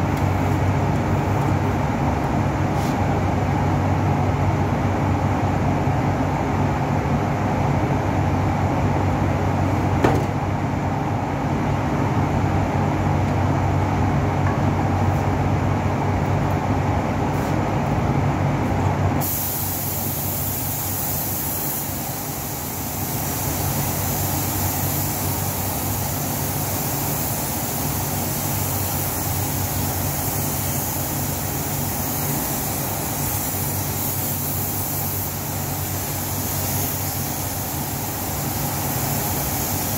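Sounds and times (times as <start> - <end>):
spray gun air hiss: 2.7 - 3.2, 17.3 - 17.6, 19.2 - 39.9.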